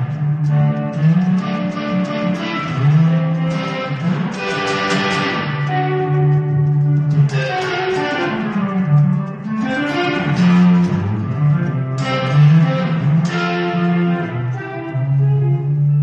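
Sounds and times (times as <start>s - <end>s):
electric guitar playing: 0.0s - 16.0s.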